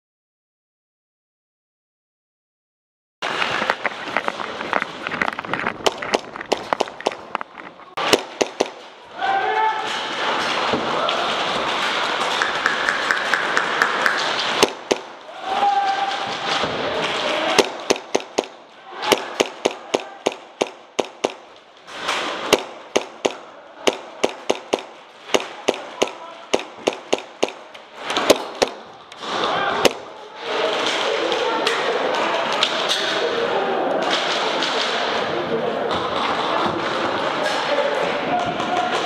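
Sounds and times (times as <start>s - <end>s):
airsoft guns firing: 5.8s - 7.4s, 8.0s - 9.2s, 9.8s - 31.1s.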